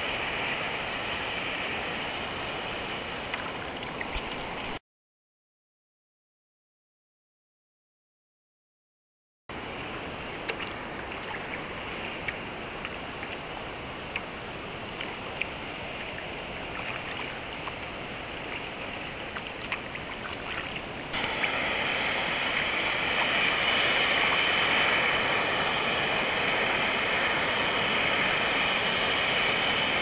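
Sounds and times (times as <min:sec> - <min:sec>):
sea water lapping and splashing: 0:00.0 - 0:04.8, 0:09.8 - 0:30.0
steady rushing hiss: 0:00.0 - 0:04.8, 0:09.5 - 0:30.0.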